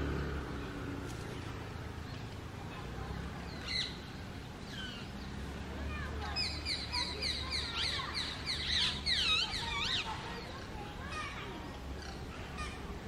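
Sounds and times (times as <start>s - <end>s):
parakeets calling: 3.4s - 4.0s, 4.6s - 5.3s, 6.3s - 10.8s.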